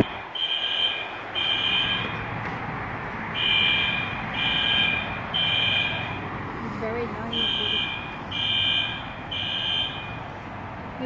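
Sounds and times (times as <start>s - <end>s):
fire alarm high tones: 0.0s - 2.2s, 3.4s - 6.2s, 7.3s - 10.3s.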